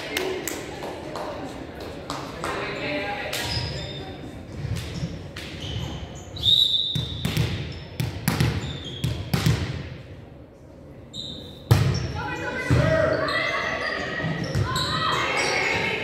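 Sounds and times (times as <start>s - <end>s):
murmur of voices: 0.0s - 6.4s, 9.9s - 16.0s
sneaker squeaks: 3.4s - 9.4s, 11.1s - 16.0s
basketball bouncing on court: 7.0s - 9.9s.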